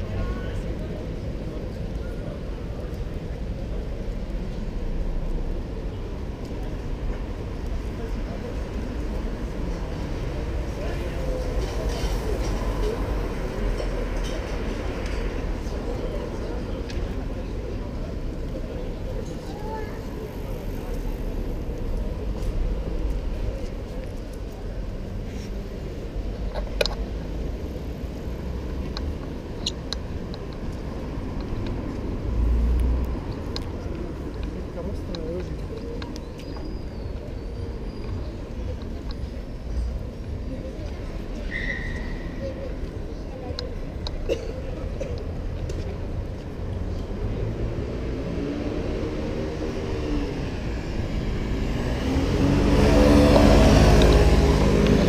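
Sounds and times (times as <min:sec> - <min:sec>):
low rumble of cars: 0:00.0 - 0:55.0
vehicle engine speeding up: 0:51.1 - 0:55.0.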